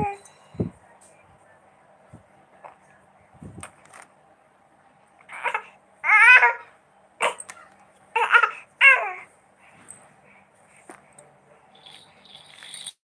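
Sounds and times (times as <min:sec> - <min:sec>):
infant babbling: 0:00.0 - 0:00.2, 0:05.3 - 0:07.6, 0:08.2 - 0:09.3.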